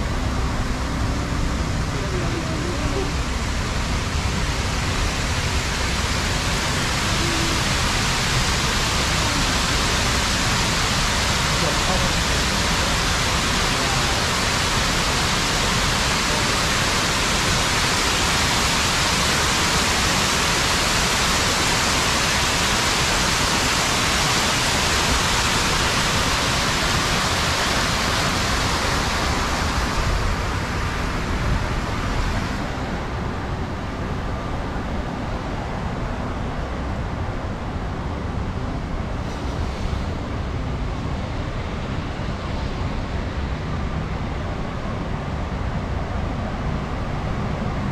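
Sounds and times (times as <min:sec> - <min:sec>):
water rushing down fountain: 0:00.0 - 0:33.2
city street traffic hum: 0:00.0 - 0:47.9.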